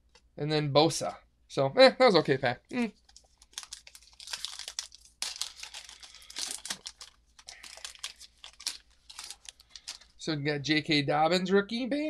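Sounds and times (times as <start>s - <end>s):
wrapper tearing and crinkling: 3.0s - 10.2s.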